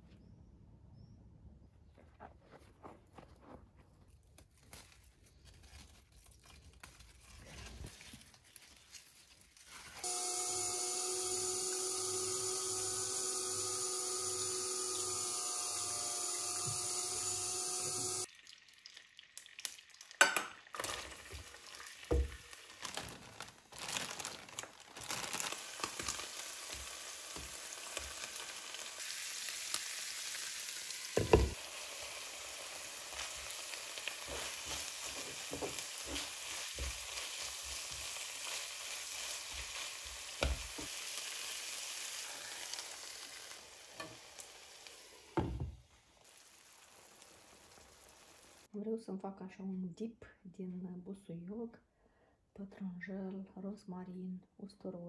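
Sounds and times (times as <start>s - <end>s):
food sizzling in a pan: 9.6s - 48.7s.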